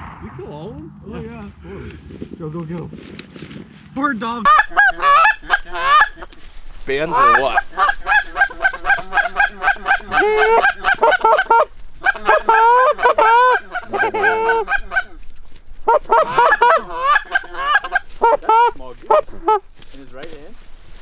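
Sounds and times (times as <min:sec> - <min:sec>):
geese honking and clucking: 0:04.5 - 0:19.7.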